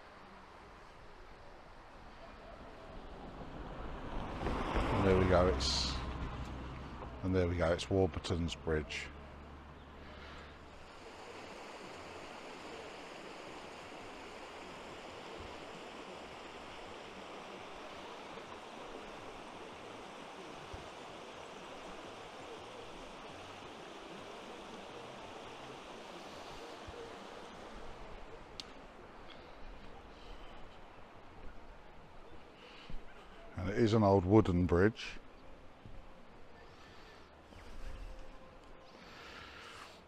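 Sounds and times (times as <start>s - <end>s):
river water rushing: 0.0s - 33.3s.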